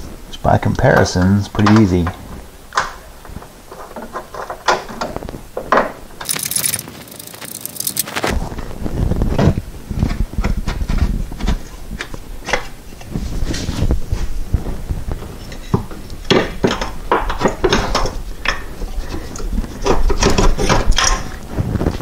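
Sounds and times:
metal parts clinking: 0:06.2 - 0:08.3
sharp clicks: 0:06.2 - 0:08.3.

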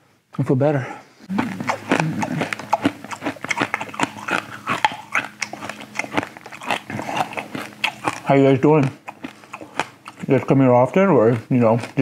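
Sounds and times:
lip smacks: 0:01.3 - 0:10.3.

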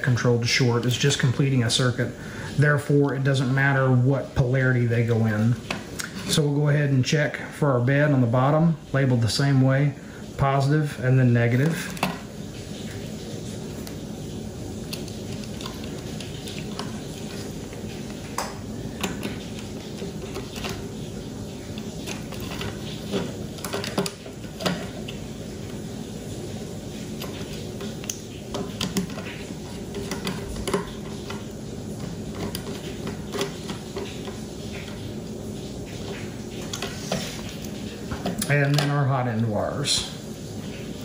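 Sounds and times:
wires clicking and rustling: 0:10.3 - 0:39.9.

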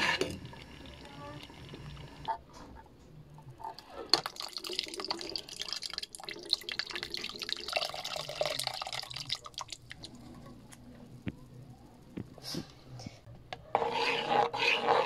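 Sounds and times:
milk pouring into a pot: 0:04.1 - 0:10.4.

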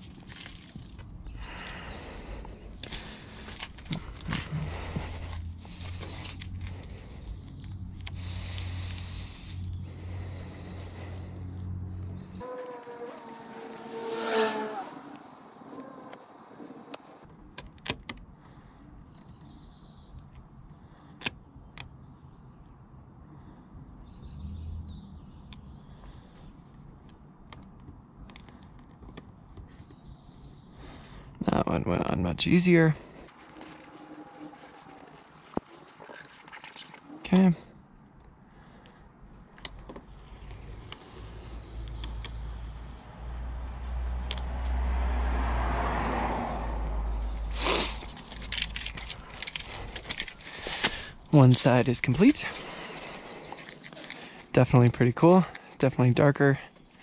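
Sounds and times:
vinyl and paper crinkling: 0:33.3 - 0:37.2, 0:48.0 - 0:51.0.

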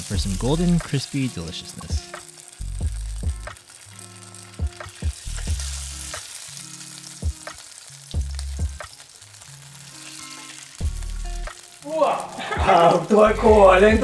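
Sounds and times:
soft bass-heavy music: 0:00.0 - 0:00.9, 0:01.6 - 0:03.6, 0:04.4 - 0:06.1, 0:08.1 - 0:08.8, 0:10.8 - 0:11.6, 0:12.4 - 0:14.0
food sizzling in a frying pan: 0:00.0 - 0:14.0.

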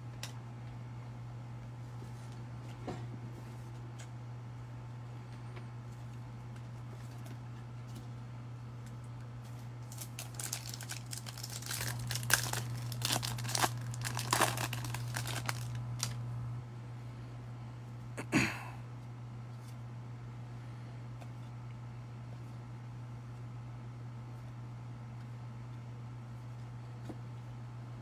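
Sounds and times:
low electrical hum: 0:00.0 - 0:28.0
foil wrapper crinkling and tearing: 0:09.8 - 0:16.2.

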